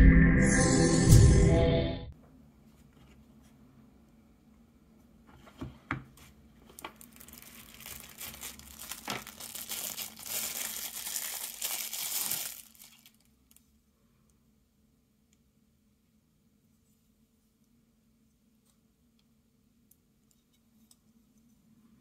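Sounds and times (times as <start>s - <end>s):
plastic wrap crinkling and tearing: 6.6s - 13.7s.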